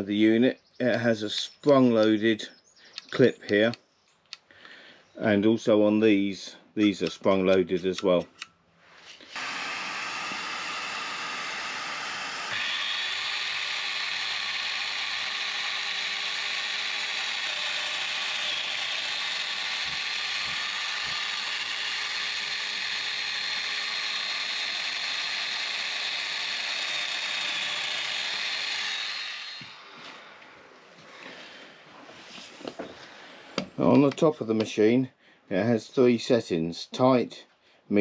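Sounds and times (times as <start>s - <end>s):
power joiner whining: 9.2s - 30.5s.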